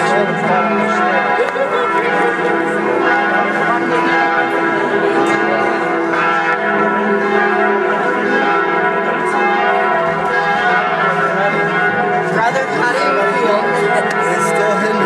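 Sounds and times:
church bells pealing: 0.0 - 15.0.

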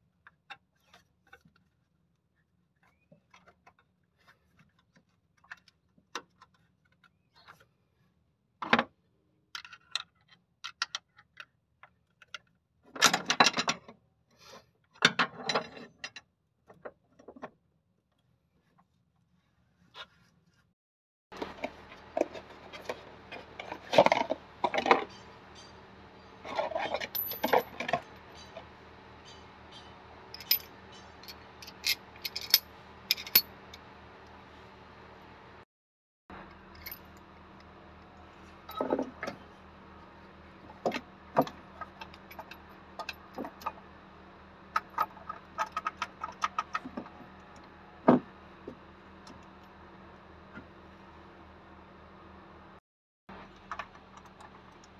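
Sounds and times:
metal parts and tools clinking: 21.4 - 33.5.

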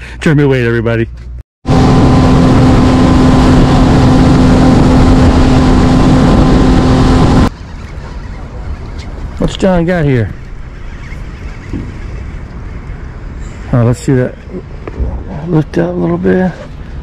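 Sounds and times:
motorboat engine running: 1.6 - 9.0.

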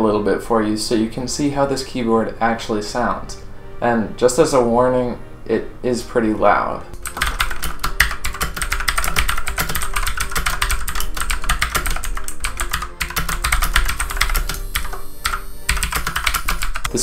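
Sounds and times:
mechanical keyboard clicking: 7.0 - 16.9.

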